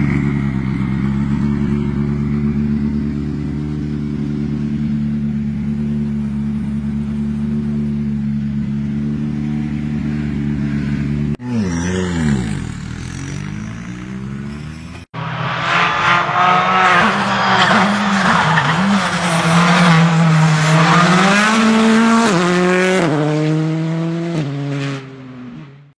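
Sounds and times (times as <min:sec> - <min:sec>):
car engine revving with gear changes: 0:08.6 - 0:25.9.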